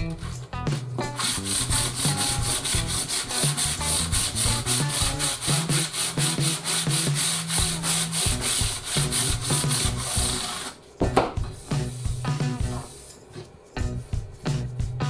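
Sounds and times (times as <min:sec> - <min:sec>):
sanding block rasping on wood: 0:01.1 - 0:10.8.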